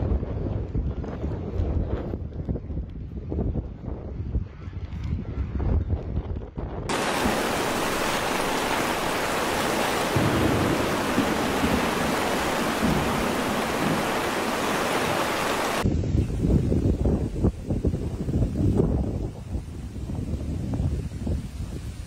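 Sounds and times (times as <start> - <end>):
wind buffeting microphone: 0.0 - 22.0
rushing floodwater: 6.9 - 15.8
torrential rain: 6.9 - 15.9.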